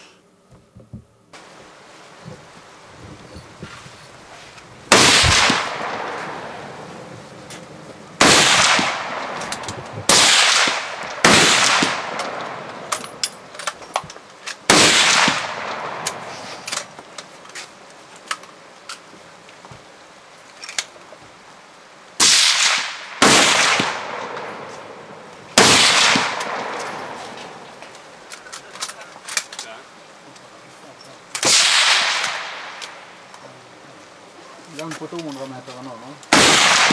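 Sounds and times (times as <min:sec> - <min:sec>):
rifle shots echoing: 0:04.9 - 0:06.9, 0:08.2 - 0:13.5, 0:14.6 - 0:16.5, 0:22.2 - 0:27.7, 0:31.4 - 0:33.1, 0:36.3 - 0:36.9.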